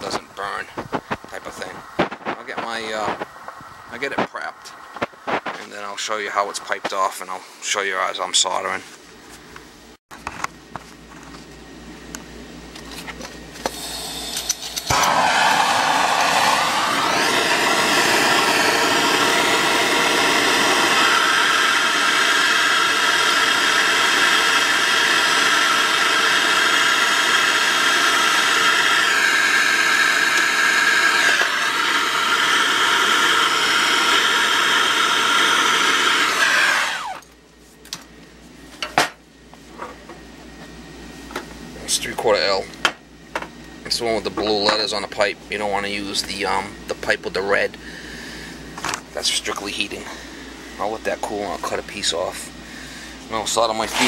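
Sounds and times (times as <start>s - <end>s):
propane torch hissing: 13.6s - 37.2s, 47.0s - 54.0s.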